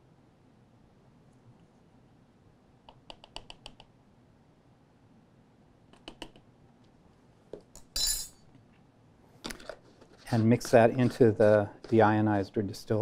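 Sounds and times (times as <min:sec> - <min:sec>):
scraping rustle: 0:09.7 - 0:12.1.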